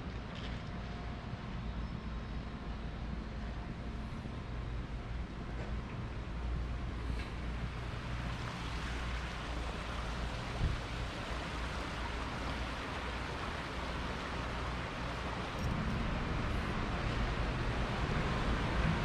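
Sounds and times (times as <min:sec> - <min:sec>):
rushing rocky stream: 0:07.5 - 0:19.0
low rumble: 0:15.5 - 0:19.0.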